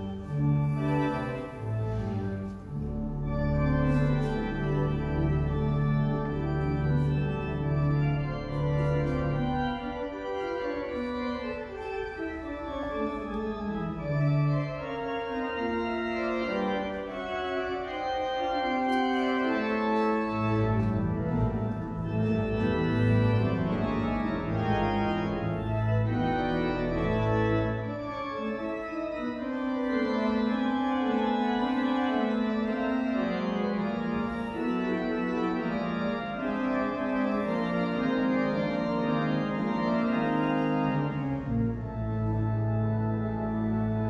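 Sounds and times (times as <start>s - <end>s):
church organ chords: 0.0s - 44.0s
deep organ pedal bass notes: 0.0s - 44.0s.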